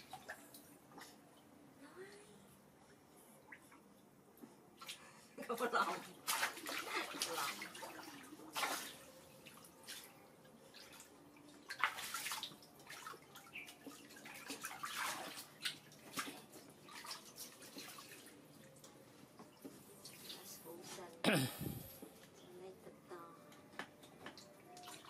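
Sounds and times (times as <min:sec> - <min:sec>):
water splashing in pool: 0:05.8 - 0:18.7.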